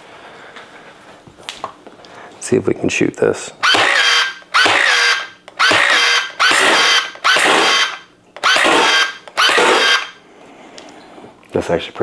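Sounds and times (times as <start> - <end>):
electric water gun motor whir: 3.6 - 10.2.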